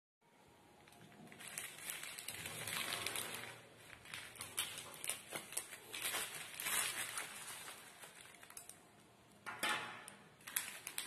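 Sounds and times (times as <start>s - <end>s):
plastic mailer bag crinkling: 0.9s - 9.0s, 10.3s - 11.0s.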